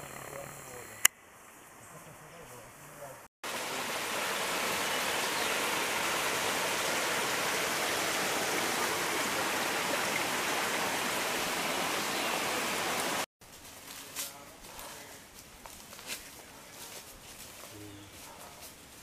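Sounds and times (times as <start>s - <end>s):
stream running over rocks: 3.4s - 13.3s.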